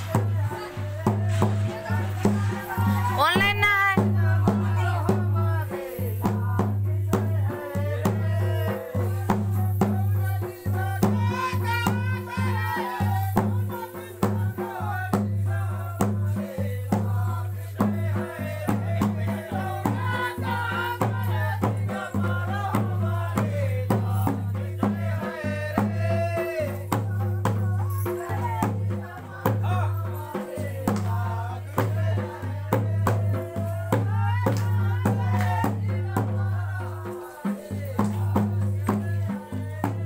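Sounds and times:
shaken rattle: 0.0s - 15.7s
drum strokes: 0.0s - 40.0s
voices singing: 0.0s - 40.0s.

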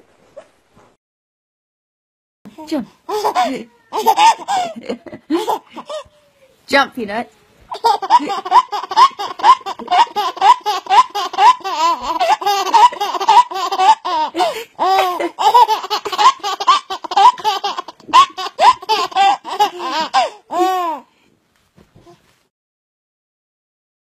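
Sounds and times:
baby laughing: 3.1s - 6.4s, 7.7s - 21.1s.

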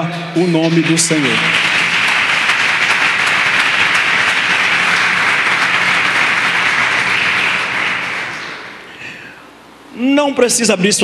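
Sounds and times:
congregation applauding: 0.4s - 9.0s.

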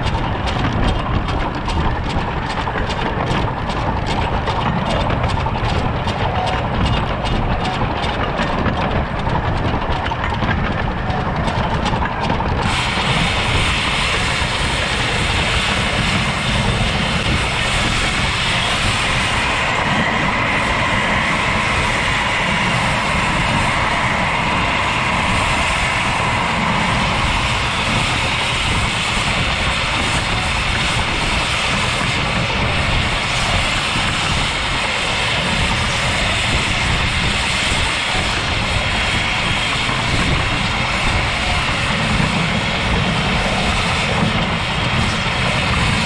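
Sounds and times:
wheels clattering on rails: 0.0s - 46.0s
hiss of escaping steam: 12.6s - 19.4s.

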